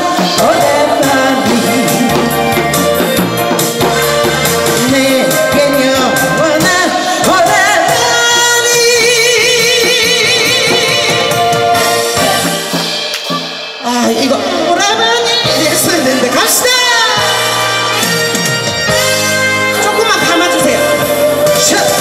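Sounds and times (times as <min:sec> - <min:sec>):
woman singing into microphone: 0:00.0 - 0:02.7, 0:04.6 - 0:12.7
amplified backing track: 0:00.0 - 0:22.0.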